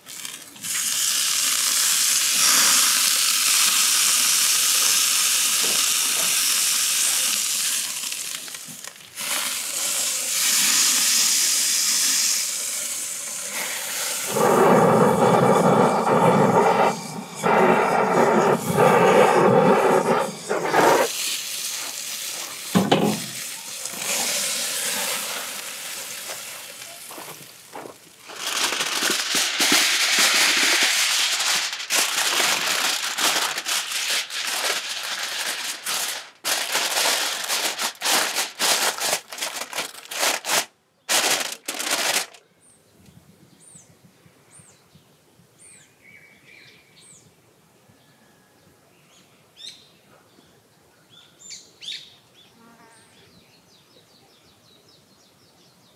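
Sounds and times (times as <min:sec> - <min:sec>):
aluminium foil crinkling: 0:00.0 - 0:16.8, 0:17.4 - 0:42.4
steak sizzling on grill: 0:00.0 - 0:37.8.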